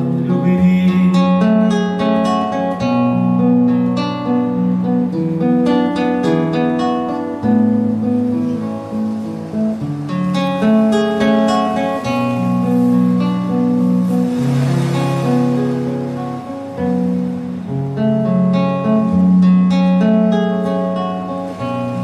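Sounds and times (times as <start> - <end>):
fingerpicked acoustic guitar: 0.0 - 22.0.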